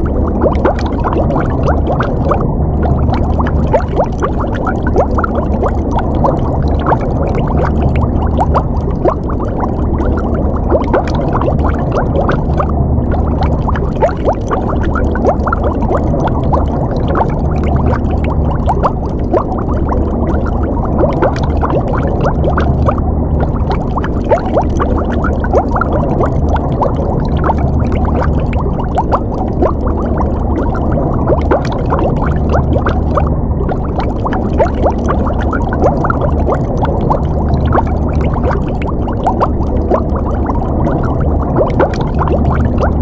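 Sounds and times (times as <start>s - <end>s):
low underwater rumble: 0.0s - 43.0s
underwater bubbling: 0.0s - 43.0s.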